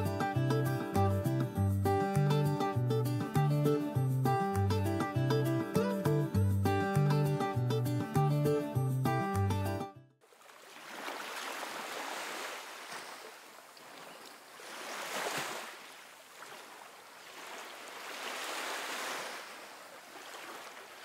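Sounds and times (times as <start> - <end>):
ocean surf breaking on beach: 10.4 - 21.0.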